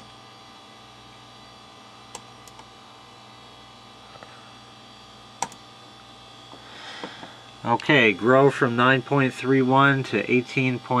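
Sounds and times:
computer hum: 0.0 - 11.0
faint computer input clicks: 5.4 - 5.6.

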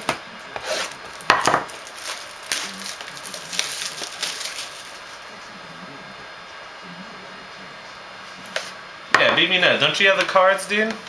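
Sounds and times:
card pack crinkling: 1.6 - 5.2.

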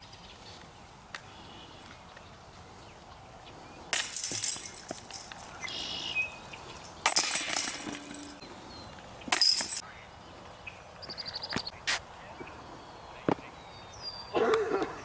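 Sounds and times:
disc golf basket chains jangling: 4.0 - 8.4, 9.3 - 9.8.

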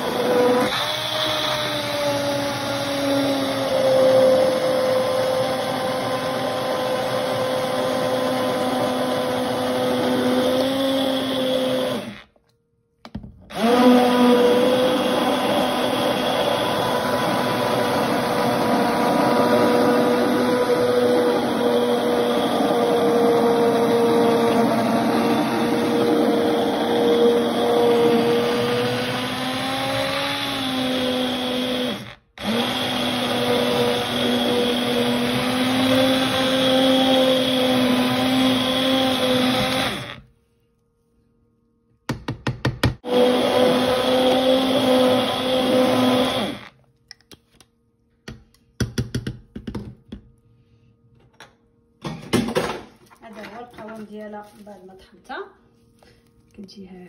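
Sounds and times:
immersion blender motor hum: 0.0 - 12.4, 13.5 - 40.3, 43.0 - 46.8.

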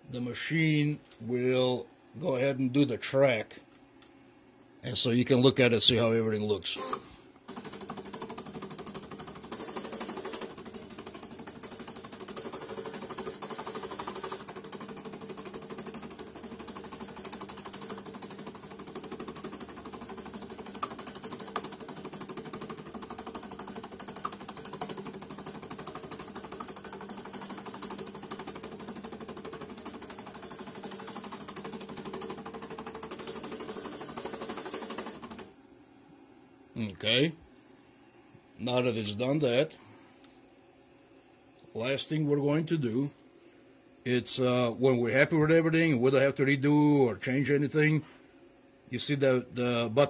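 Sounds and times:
sharp mechanical clicks: 6.8 - 35.4.

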